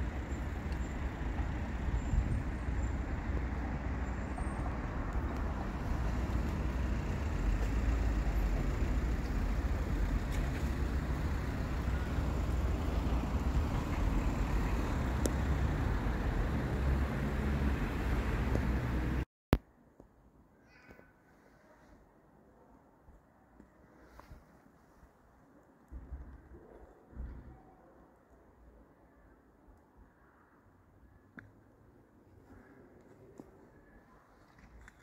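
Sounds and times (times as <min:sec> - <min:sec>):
street traffic noise: 0:00.0 - 0:19.3.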